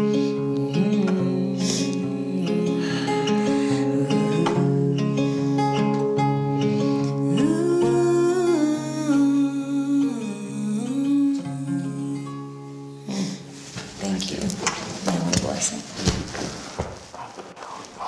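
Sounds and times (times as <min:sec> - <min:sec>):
woman humming: 0:00.0 - 0:05.9, 0:06.8 - 0:13.6
acoustic guitar: 0:00.0 - 0:18.0.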